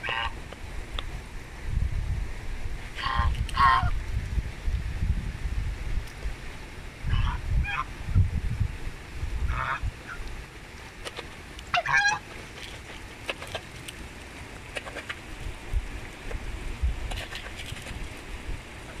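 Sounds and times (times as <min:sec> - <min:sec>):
geese honking: 0:00.0 - 0:00.4, 0:03.0 - 0:03.9, 0:07.1 - 0:07.9, 0:09.5 - 0:10.2, 0:11.7 - 0:13.7.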